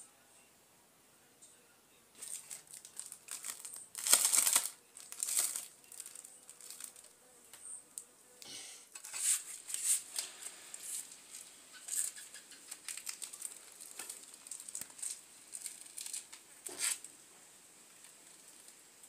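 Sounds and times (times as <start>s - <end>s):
plastic bags rustling and crinkling: 2.2s - 7.1s, 9.0s - 17.2s.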